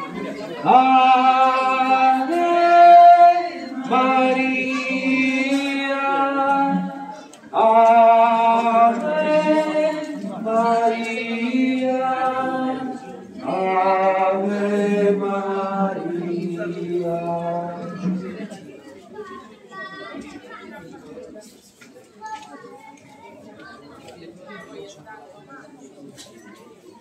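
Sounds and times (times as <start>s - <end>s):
group singing a hymn unaccompanied: 0.0s - 18.6s.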